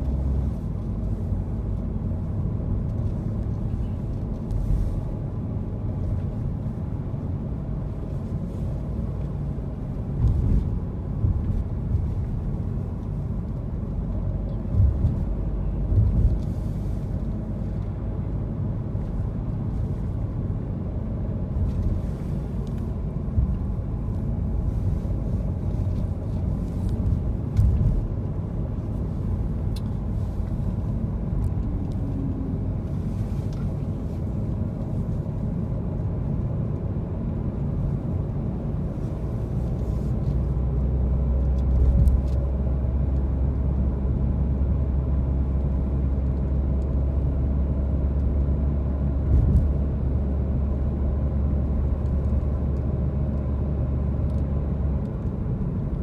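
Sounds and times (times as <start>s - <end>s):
car tyres and engine rumble: 0.0s - 56.0s.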